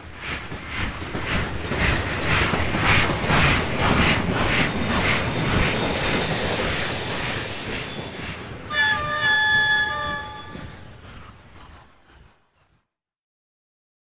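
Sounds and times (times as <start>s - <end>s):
steam locomotive chuffing: 0.0s - 12.7s
high steady tones: 3.9s - 11.6s.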